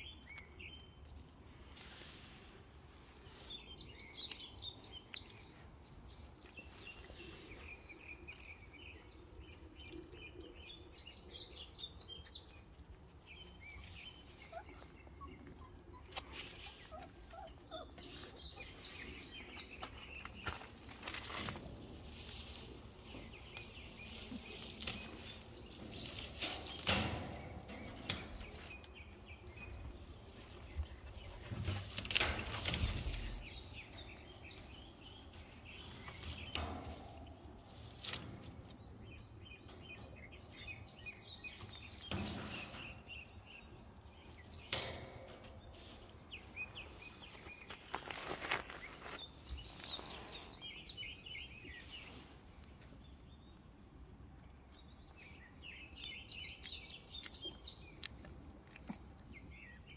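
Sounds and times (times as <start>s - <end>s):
small birds chirping: 0.0s - 59.9s
handling knocks and rustles: 18.8s - 50.6s.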